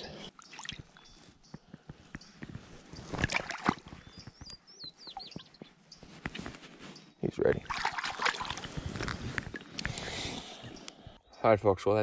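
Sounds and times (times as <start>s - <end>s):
shallow water splashing: 3.2s - 4.0s, 7.6s - 10.5s.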